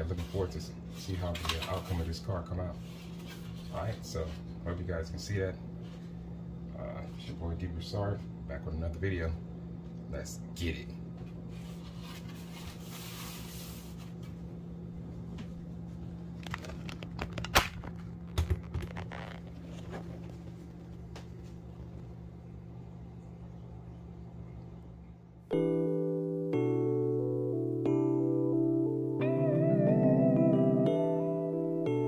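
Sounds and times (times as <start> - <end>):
steady low hum: 0.0 - 32.0
plastic rustling and light knocks: 16.4 - 21.6.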